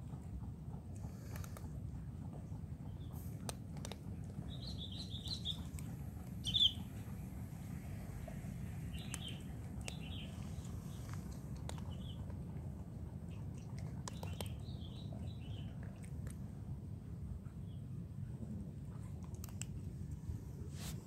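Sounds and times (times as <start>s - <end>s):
steady low rumble: 0.0s - 21.0s
cats crunching dry kibble: 0.9s - 2.4s, 3.2s - 6.4s, 8.7s - 16.6s, 19.1s - 20.1s
bird chirps: 4.5s - 5.7s, 6.4s - 6.8s, 8.9s - 10.6s.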